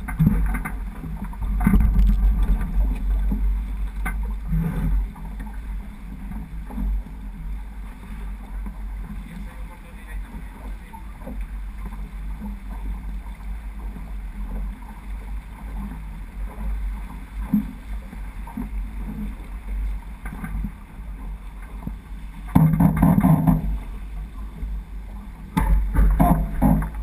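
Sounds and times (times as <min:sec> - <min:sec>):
wind buffeting camera: 0:00.0 - 0:05.5
water rushing along hull: 0:00.0 - 0:27.0.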